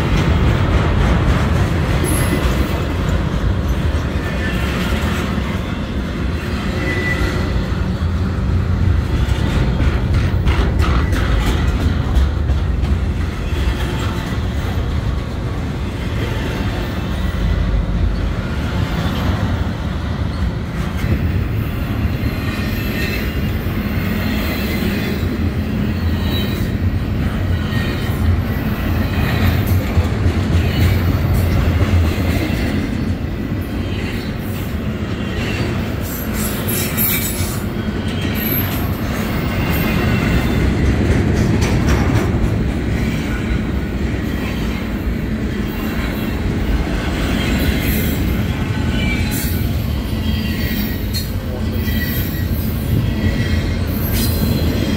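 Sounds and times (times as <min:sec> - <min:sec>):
rhythmic clickety-clack: 0:00.0 - 0:05.7, 0:08.9 - 0:17.2, 0:26.6 - 0:33.3, 0:35.4 - 0:43.8
train wheels rumbling over rails: 0:00.0 - 0:54.9.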